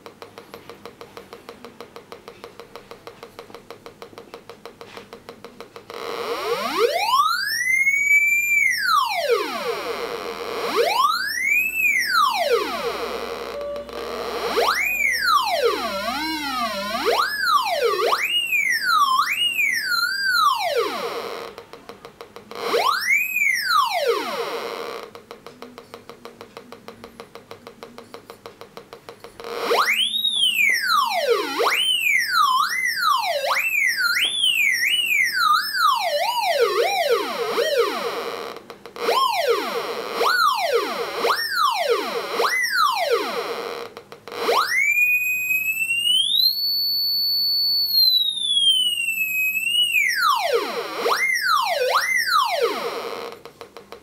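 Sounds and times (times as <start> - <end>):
metal detector sweeping tone: 10.6 - 21.2.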